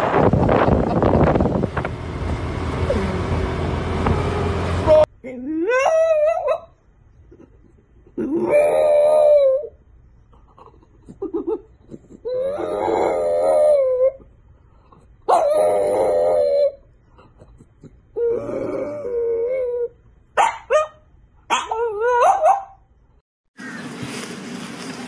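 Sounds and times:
dog howling: 8.4 - 9.7, 12.3 - 14.2, 15.3 - 16.8.

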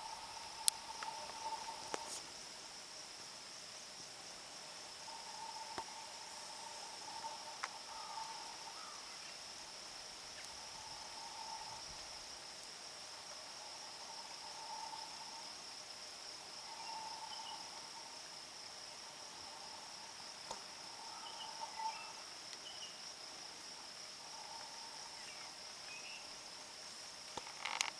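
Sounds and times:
insects droning: 0.0 - 27.9
faint bird chirps: 20.9 - 23.0.

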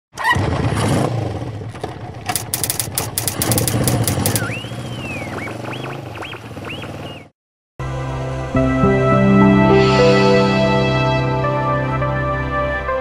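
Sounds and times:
sharp clicks: 2.3 - 4.5
motorcycle engine running: 2.3 - 5.6.

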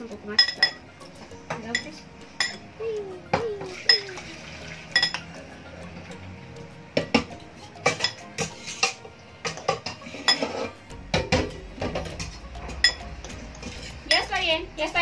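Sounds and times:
fork and spoon clinking on bowl: 0.4 - 0.9, 7.0 - 14.3.

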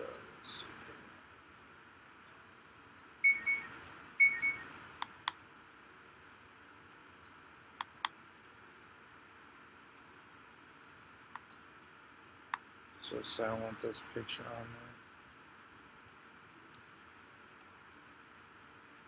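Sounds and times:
short high chirps: 3.2 - 4.7.

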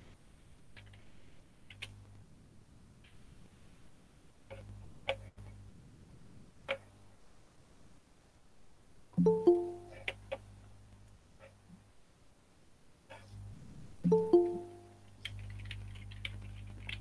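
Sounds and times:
electronic notification chime: 9.2 - 10.1, 14.1 - 15.0.

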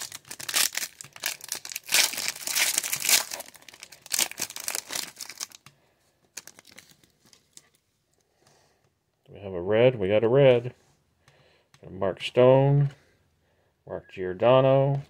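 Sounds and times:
foil wrapper tearing and crinkling: 0.0 - 5.7, 6.4 - 7.6
cards handled ticking: 0.0 - 7.7.

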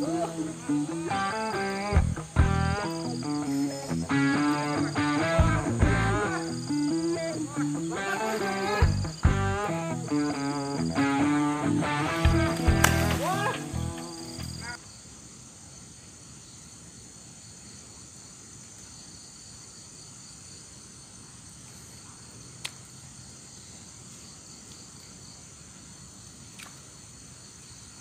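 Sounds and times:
high-pitched insect chorus: 0.0 - 28.0.

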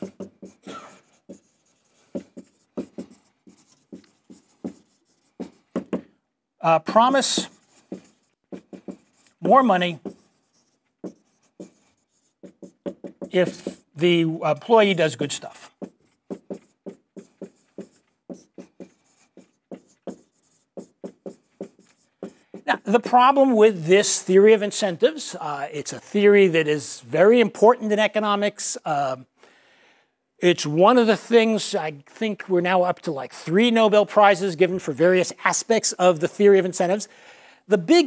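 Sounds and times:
marker writing on whiteboard: 0.0 - 23.4.

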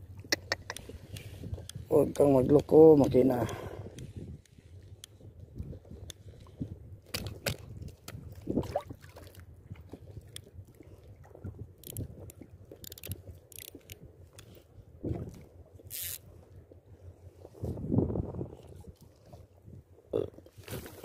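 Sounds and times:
fishing reel clicking and scraping: 11.8 - 12.1, 12.8 - 14.5, 15.9 - 16.3.

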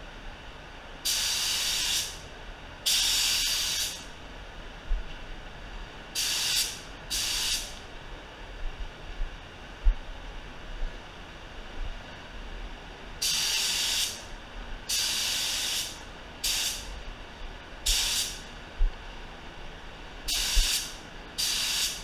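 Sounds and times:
spray gun hissing bursts: 1.0 - 2.2, 2.9 - 4.1, 6.2 - 7.8, 13.2 - 14.3, 14.9 - 17.0, 17.8 - 18.5, 20.3 - 22.0.

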